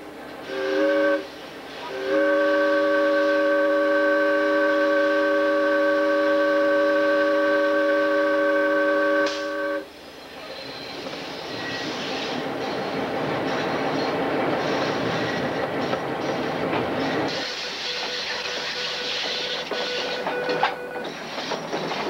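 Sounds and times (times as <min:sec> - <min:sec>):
train wheels on rails: 0:00.0 - 0:22.0
locomotive chime air horn: 0:00.5 - 0:09.9, 0:17.3 - 0:21.2.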